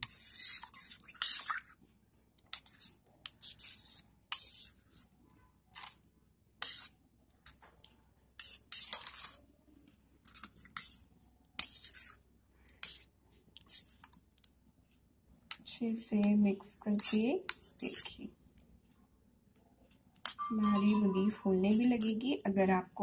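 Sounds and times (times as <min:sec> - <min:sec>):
metal spoon scraping steel dish: 0:20.3 - 0:22.1.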